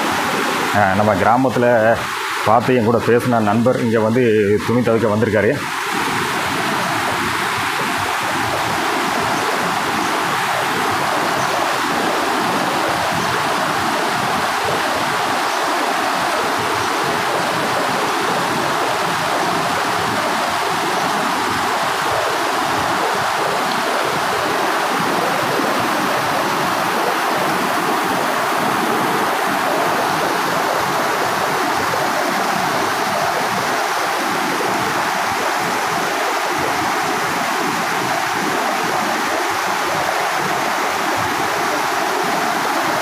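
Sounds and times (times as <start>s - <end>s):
stream rushing over boulders: 0.0s - 43.0s.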